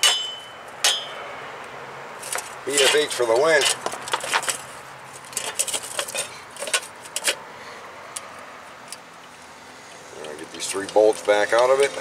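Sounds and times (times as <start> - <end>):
light metallic clinks and knocks: 5.2 - 7.4.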